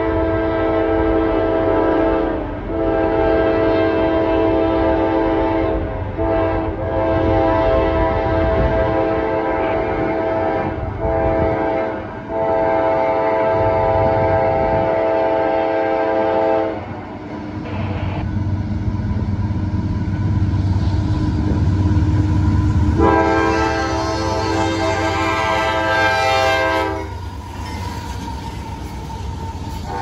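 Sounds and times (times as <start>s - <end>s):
locomotive air horn blasts: 0.0s - 16.9s, 23.0s - 28.2s, 29.7s - 30.0s
diesel locomotive rumble: 0.0s - 30.0s.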